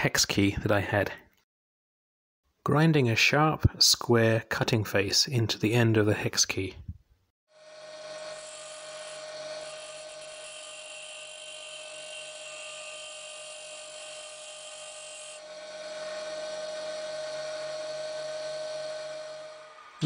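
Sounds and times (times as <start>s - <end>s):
bench grinder whining: 7.6s - 20.0s
steel being ground: 7.6s - 20.0s.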